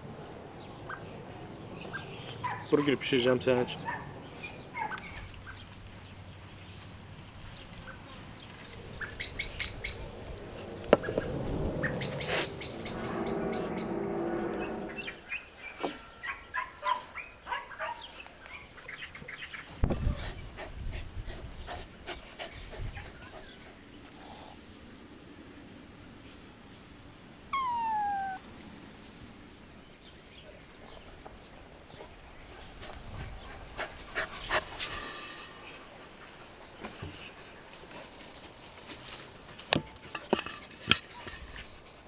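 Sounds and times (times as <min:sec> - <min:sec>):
birds chirping and calling: 0:00.6 - 0:19.7, 0:27.6 - 0:28.4, 0:32.5 - 0:38.8, 0:40.6 - 0:42.0.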